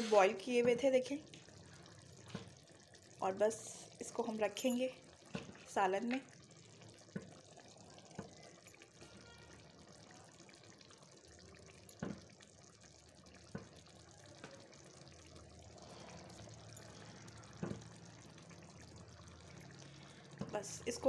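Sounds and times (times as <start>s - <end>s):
faint watery hiss: 0.0s - 5.8s, 13.6s - 21.0s.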